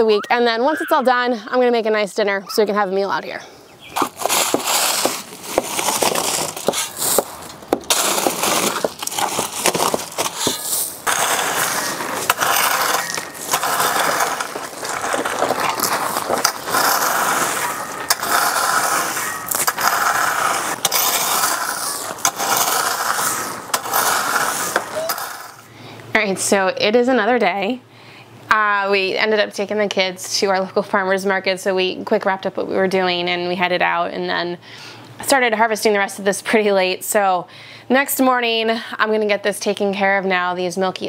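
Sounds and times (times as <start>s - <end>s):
gravel being raked: 3.9s - 25.7s.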